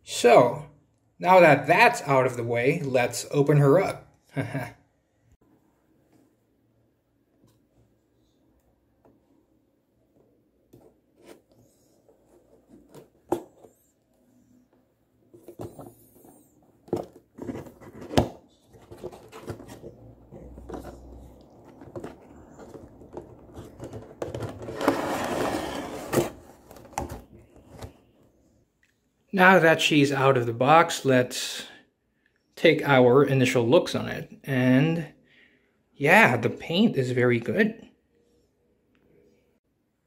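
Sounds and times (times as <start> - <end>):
plastic tray sliding out: 18.8 - 27.9.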